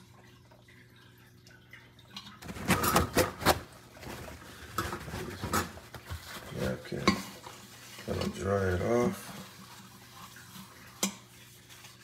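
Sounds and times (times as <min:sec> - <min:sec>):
metal bowl clanking: 0:04.6 - 0:06.0.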